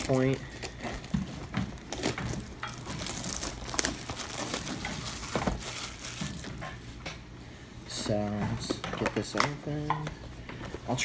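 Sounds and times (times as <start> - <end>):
packaging crinkling: 0.0 - 6.8.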